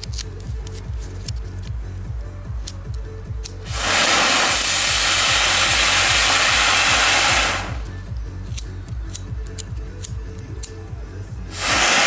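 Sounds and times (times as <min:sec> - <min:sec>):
firework sparks hissing: 0:03.6 - 0:07.9, 0:11.5 - 0:12.0.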